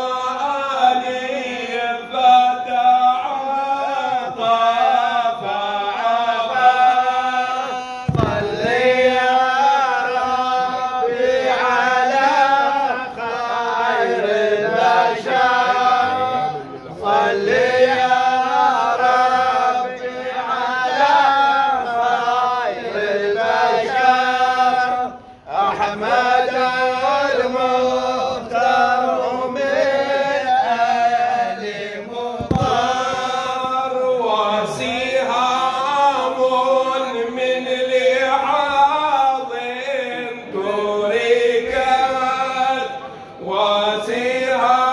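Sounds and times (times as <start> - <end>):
men chanting a devotional song: 0.0 - 44.9.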